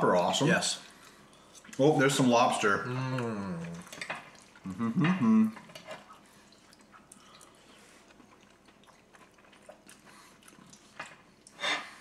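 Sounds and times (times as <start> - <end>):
wet eating sounds: 0.0 - 12.0
man humming: 2.8 - 3.8, 4.6 - 5.6.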